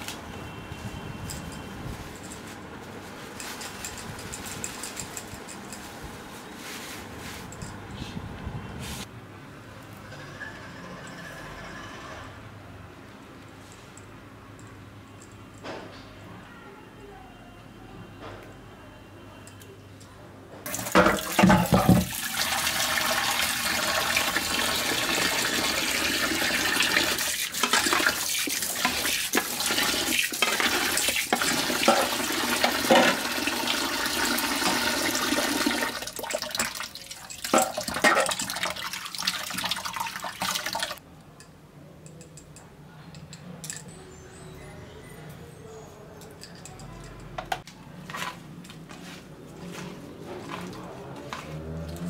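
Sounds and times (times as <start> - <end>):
tap running into a pan: 20.7 - 22.5, 27.0 - 35.9.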